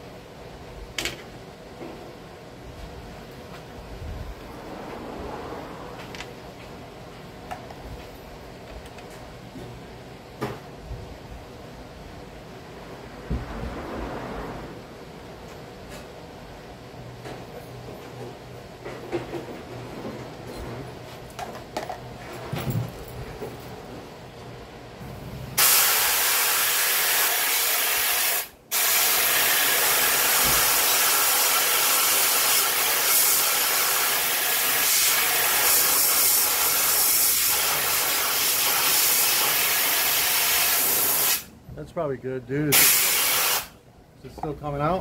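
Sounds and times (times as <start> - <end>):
pressurised spray hissing: 25.6 - 41.5, 42.7 - 43.8.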